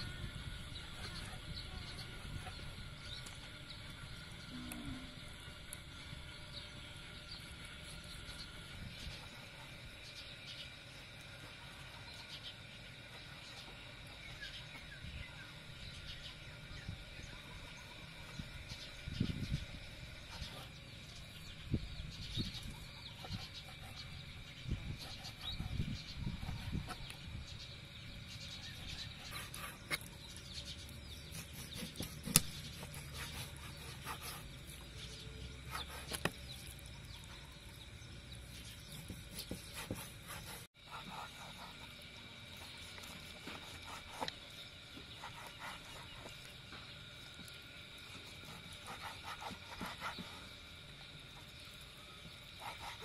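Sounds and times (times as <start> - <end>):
knife slicing raw meat: 31.2 - 34.7.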